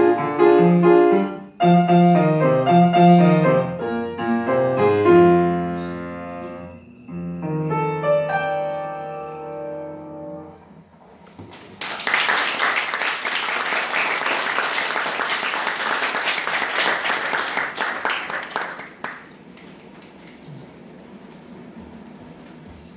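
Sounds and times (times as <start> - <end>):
audience applauding: 11.4 - 20.4.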